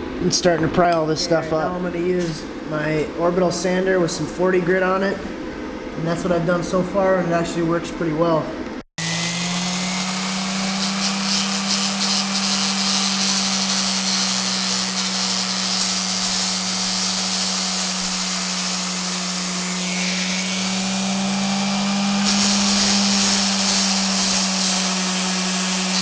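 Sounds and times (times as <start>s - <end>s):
orbital sander grinding metal: 9.0s - 26.0s.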